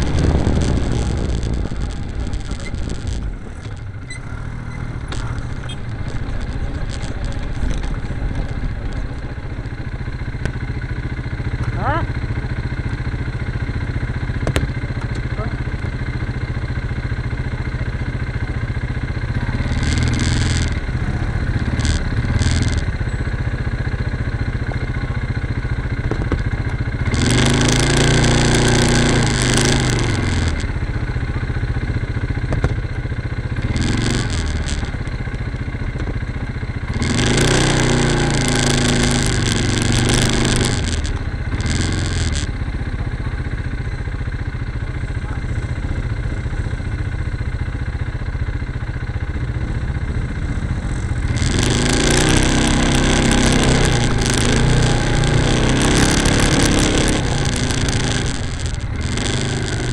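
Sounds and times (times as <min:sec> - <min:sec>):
quad bike revving hard: 0:00.0 - 0:03.4, 0:19.2 - 0:23.1, 0:26.9 - 0:30.8, 0:33.5 - 0:35.2, 0:36.8 - 0:42.6, 0:49.7 - 0:59.9
quad bike engine rumbling: 0:00.0 - 0:59.9.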